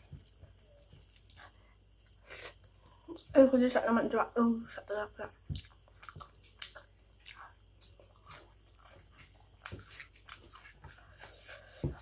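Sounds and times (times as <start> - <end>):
chewing with mouth clicks: 0.2 - 2.2, 5.5 - 12.0
fingers squishing rice: 5.6 - 12.0.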